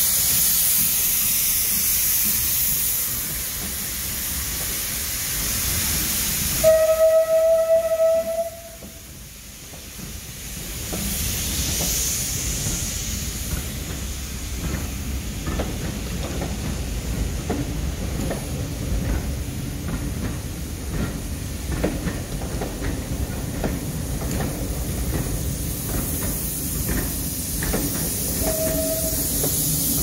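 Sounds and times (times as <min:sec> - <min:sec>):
rumble of train bogies: 0:00.0 - 0:30.0
steam hissing: 0:00.0 - 0:30.0
wheels clicking over rail joints: 0:08.2 - 0:30.0.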